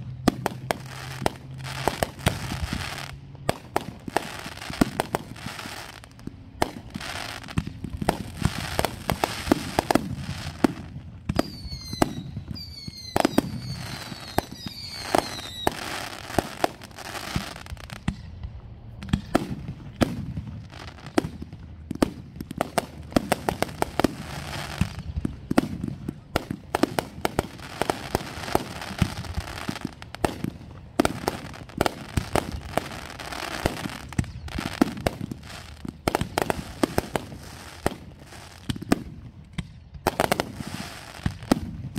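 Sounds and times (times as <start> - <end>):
firework crackling: 0.0 - 18.3, 18.9 - 41.9
firework bangs: 0.0 - 41.9
falling firework whistles: 8.2 - 18.1.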